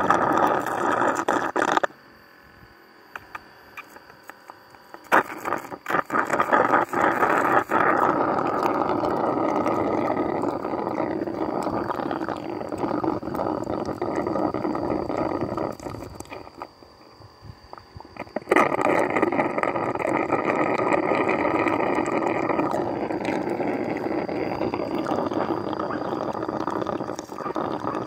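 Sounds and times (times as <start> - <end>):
slurping through a straw: 0.0 - 1.9, 5.0 - 16.8, 17.7 - 28.0
small clicks: 3.1 - 6.0.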